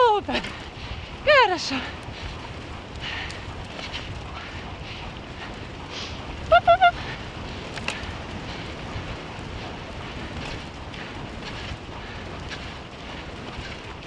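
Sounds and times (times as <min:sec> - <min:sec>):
scooter rattles and clicks: 0:00.0 - 0:14.0
tyres rumbling on dirt trail: 0:00.0 - 0:14.0
wind on microphone: 0:00.0 - 0:14.0.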